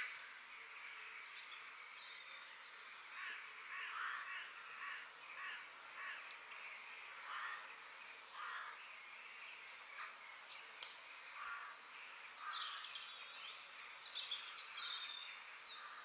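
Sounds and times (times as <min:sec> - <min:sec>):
forest background hiss: 0:00.0 - 0:16.0
small birds chirping: 0:00.0 - 0:16.0
crow cawing: 0:03.2 - 0:06.3, 0:07.2 - 0:07.7, 0:08.4 - 0:08.7, 0:11.4 - 0:11.8.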